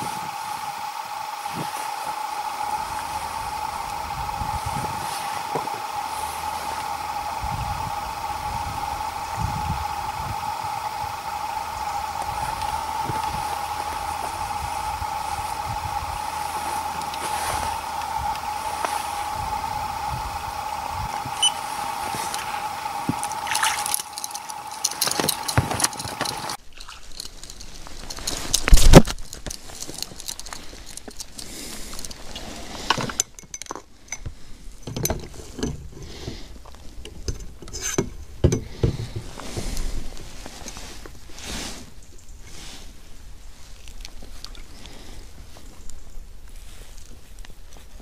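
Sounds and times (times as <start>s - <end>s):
high hum with hiss: 0.0s - 48.0s
knocks and rustles in a boat: 32.8s - 41.4s.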